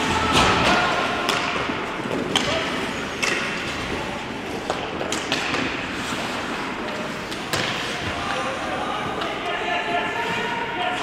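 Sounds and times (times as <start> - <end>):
sharp clacks of sticks and puck: 0.3 - 9.6
skates scraping on ice: 2.1 - 9.2.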